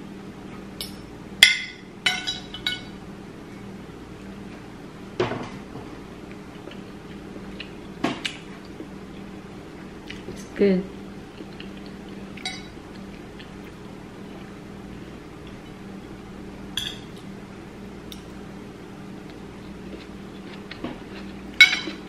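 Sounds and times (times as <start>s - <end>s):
cutlery clinking on a plate: 21.6s - 22.0s.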